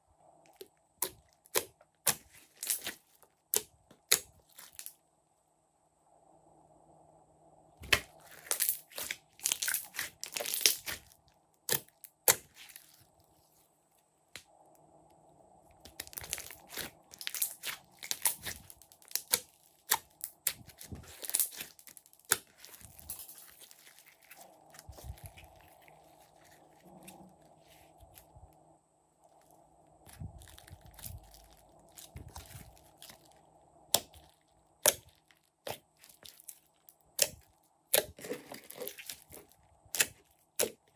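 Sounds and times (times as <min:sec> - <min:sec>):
slime crackling and popping: 0:00.5 - 0:05.0, 0:07.8 - 0:13.2, 0:15.8 - 0:27.1, 0:30.0 - 0:40.9.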